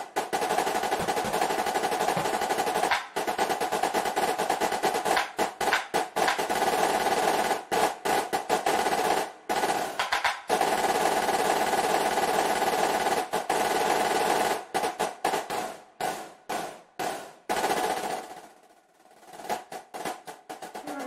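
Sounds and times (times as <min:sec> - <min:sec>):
marching drums playing fast rolls: 0:00.2 - 0:07.2, 0:19.3 - 0:21.0.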